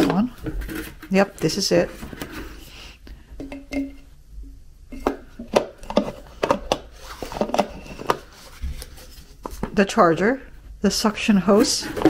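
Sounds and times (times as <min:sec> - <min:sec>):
plastic parts knocking and clicking: 0:03.4 - 0:04.0, 0:05.0 - 0:08.3
rustling: 0:05.0 - 0:09.8.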